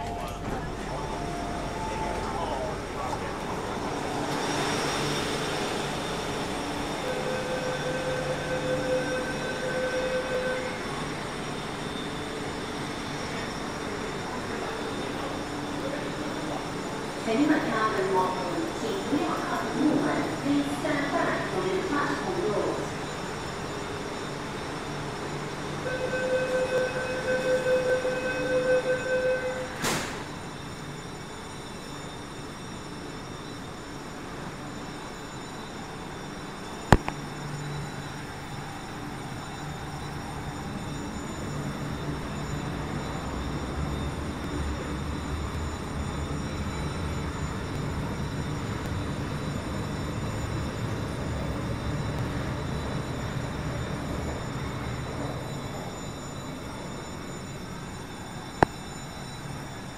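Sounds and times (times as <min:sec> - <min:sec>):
train cabin rumble: 0:00.0 - 0:04.6
pulsing electronic warning tone: 0:00.0 - 0:59.9
train carriage hum: 0:00.0 - 0:59.9.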